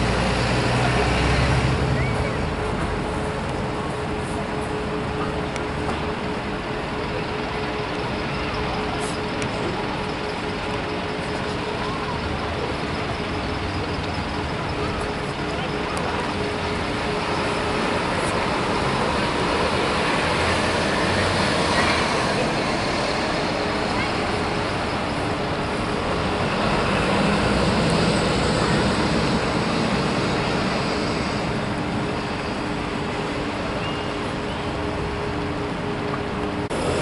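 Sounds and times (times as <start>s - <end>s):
bus engines passing: 0.0s - 37.0s
town traffic: 0.0s - 37.0s.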